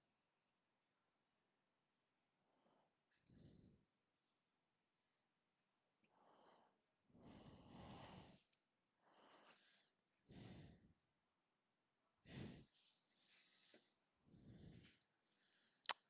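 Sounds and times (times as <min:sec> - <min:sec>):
soft breathing: 0:02.4 - 0:03.9, 0:06.0 - 0:11.2, 0:12.2 - 0:15.9.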